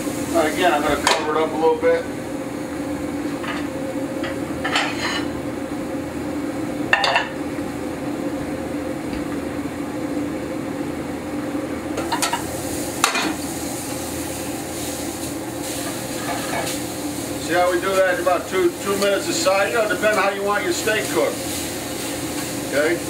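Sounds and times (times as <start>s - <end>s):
steak sizzling in a skillet: 0.0s - 1.2s, 12.0s - 23.0s
vent hood fan hum: 0.0s - 23.0s
metallic clanks of pans: 4.6s - 5.3s.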